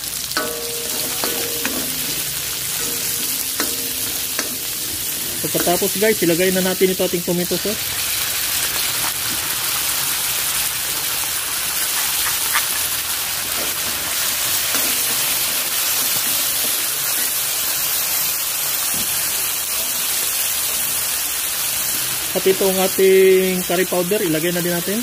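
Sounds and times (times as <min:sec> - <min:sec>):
sauce sizzling in hot oil: 0:00.0 - 0:25.0
ladle scraping wok: 0:00.1 - 0:06.3.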